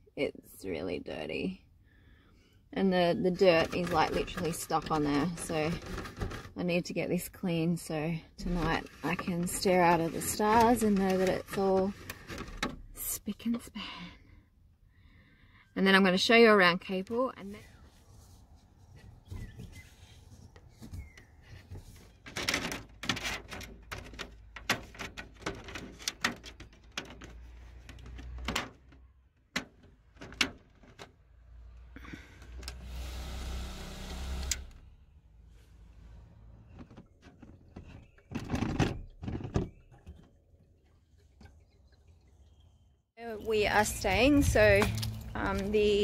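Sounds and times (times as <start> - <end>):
plastic parts clicking and knocking: 3.4 - 6.6, 8.4 - 13.0, 20.8 - 31.2, 36.7 - 40.4.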